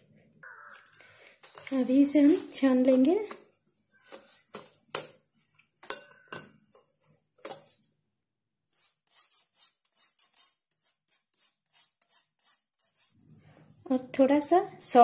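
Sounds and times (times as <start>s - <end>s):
spoon scraping over mesh: 1.4s - 7.9s.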